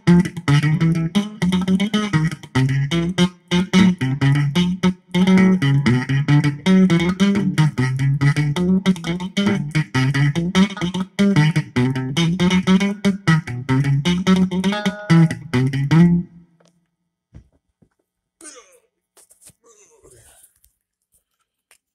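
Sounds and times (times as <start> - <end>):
distorted electric guitar riff: 0.0 - 16.3.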